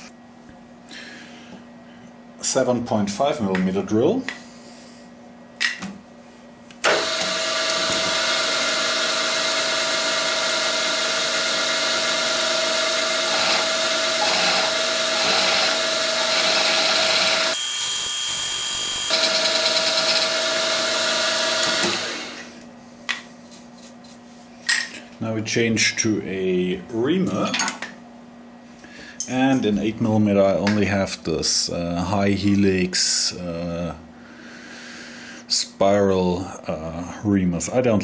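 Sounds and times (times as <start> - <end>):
drill spindle whine: 6.8 - 22.6
rough drilling noise: 6.8 - 22.6.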